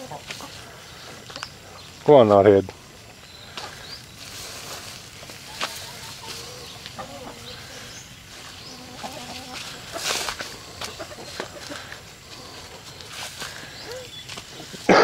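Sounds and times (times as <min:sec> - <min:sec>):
chickens clucking: 0:00.0 - 0:15.0
footsteps through grass: 0:00.0 - 0:15.0.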